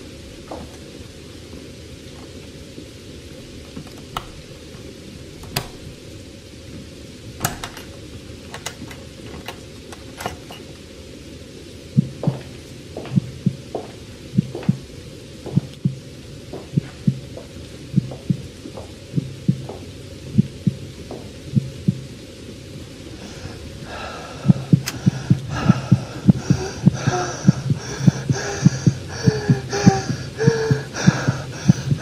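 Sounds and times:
heartbeat thumps: 11.9s - 22.1s.

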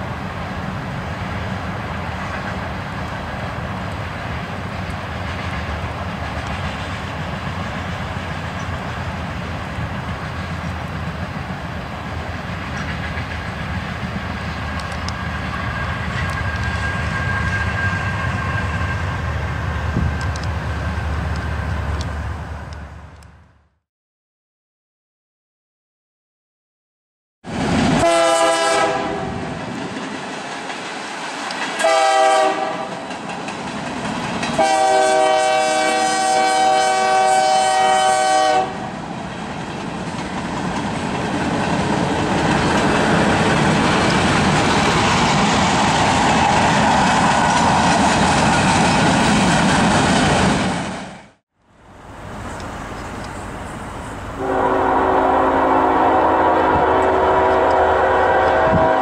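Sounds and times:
train rumble and wheel clatter: 0.0s - 23.5s, 27.5s - 59.0s
locomotive air horn: 28.0s - 29.4s, 31.8s - 33.0s, 34.6s - 38.9s, 54.4s - 59.0s
lower-pitched locomotive horn: 28.0s - 29.5s, 31.8s - 33.0s, 34.6s - 38.9s, 54.4s - 59.0s.

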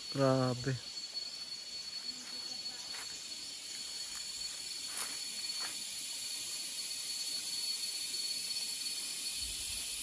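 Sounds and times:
thin ringing tone: 0.0s - 5.8s
insects droning: 0.0s - 10.0s.

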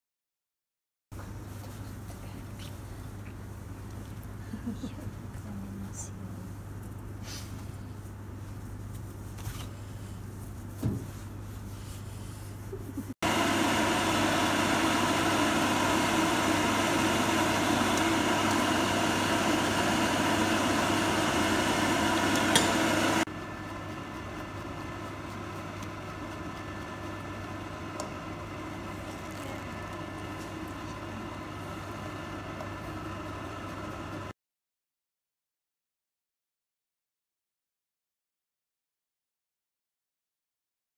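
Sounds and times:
pet grooming dryer blowing: 13.2s - 34.3s.

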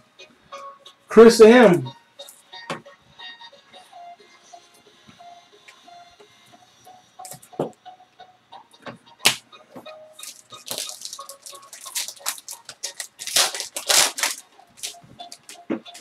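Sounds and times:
cards rustling and clicking: 10.2s - 16.0s
foil wrapper crinkling and tearing: 10.2s - 16.0s.

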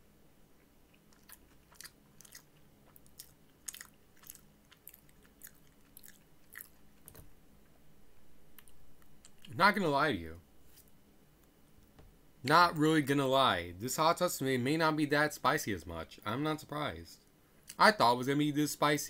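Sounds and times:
person chewing food: 0.6s - 7.3s, 8.6s - 9.6s.

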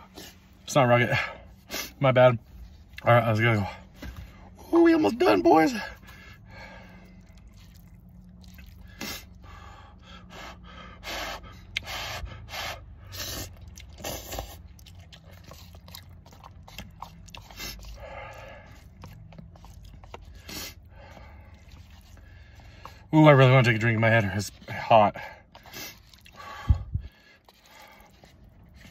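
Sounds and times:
person breathing: 5.9s - 7.6s
person slurping noodles: 13.0s - 22.5s, 27.4s - 28.9s.

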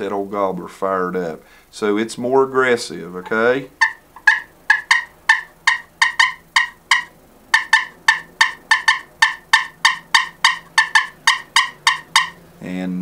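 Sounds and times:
turkey call sharp clucks: 3.2s - 12.4s.

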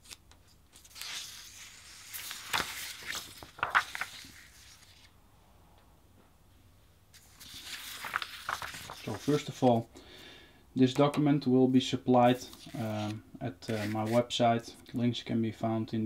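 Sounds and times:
paper crinkling: 0.0s - 5.1s, 7.2s - 9.8s, 12.2s - 14.4s
paper rustling and sliding: 0.0s - 5.1s, 7.2s - 9.8s, 12.2s - 14.4s.

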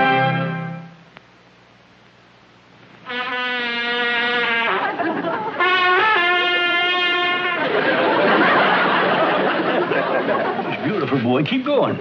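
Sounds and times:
trumpet long held notes: 0.0s - 1.0s, 3.0s - 5.0s, 5.6s - 7.8s
studio audience laughing: 4.6s - 6.7s, 7.3s - 11.2s.

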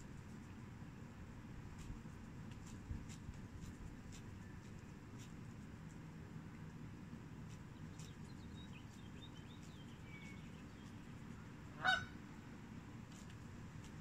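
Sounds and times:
faint bird chirps: 7.8s - 11.1s
goose honk: 11.8s - 12.1s.

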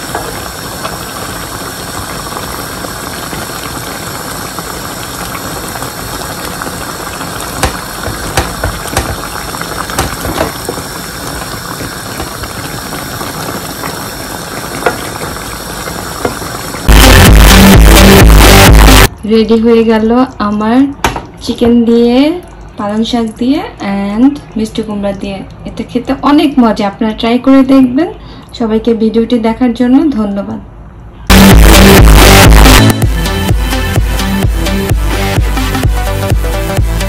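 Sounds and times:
broth boiling and bubbling: 0.0s - 28.4s.

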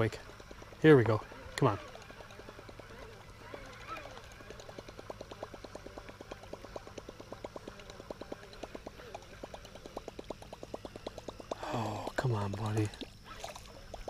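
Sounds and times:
fishing reel gears ticking: 0.0s - 14.0s.

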